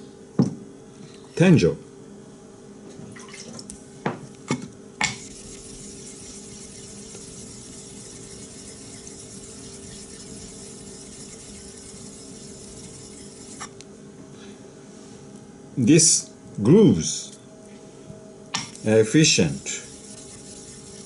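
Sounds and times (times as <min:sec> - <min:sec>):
stone rubbing on wet whetstone: 0:05.0 - 0:13.8, 0:18.6 - 0:21.0.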